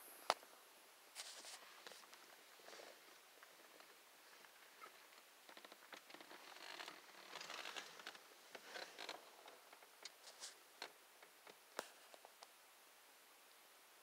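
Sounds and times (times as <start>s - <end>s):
rustling dry leaves: 3.7s - 9.2s.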